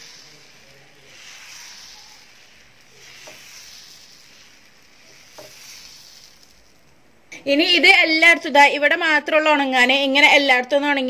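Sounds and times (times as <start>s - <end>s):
ladle spreading batter: 0.0s - 7.0s
batter sizzling on a hot pan: 0.0s - 7.2s.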